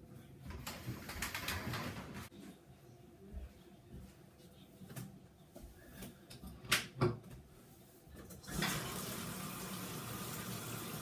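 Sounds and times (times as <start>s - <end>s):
water running into bathtub: 8.4s - 11.0s.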